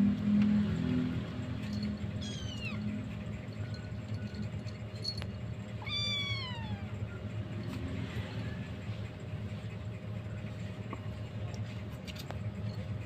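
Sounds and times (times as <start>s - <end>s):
steady low hum: 0.0s - 13.0s
kitten mewing: 2.2s - 2.8s, 5.8s - 7.1s.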